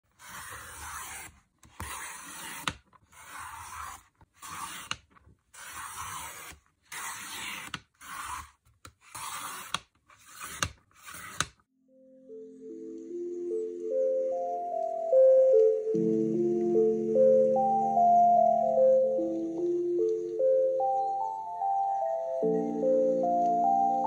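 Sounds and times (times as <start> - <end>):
paper trimmer blade scraping: 0.1 - 11.6.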